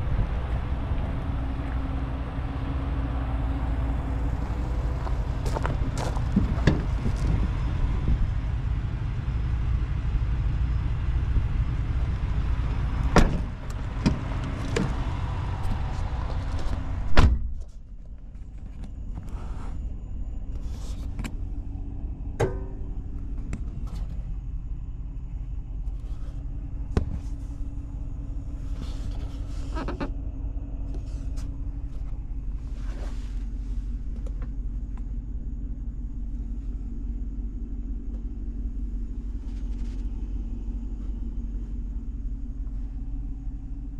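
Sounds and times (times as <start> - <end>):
loud outdoor noise: 0.0 - 17.4
low hum inside cab: 0.0 - 43.9
truck door shutting thud: 13.0 - 15.1, 17.0 - 17.7, 22.4 - 22.9.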